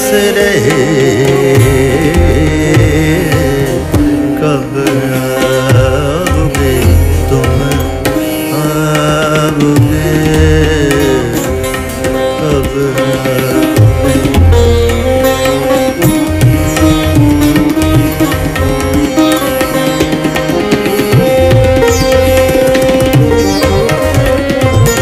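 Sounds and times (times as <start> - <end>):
tabla playing: 0.0 - 25.0.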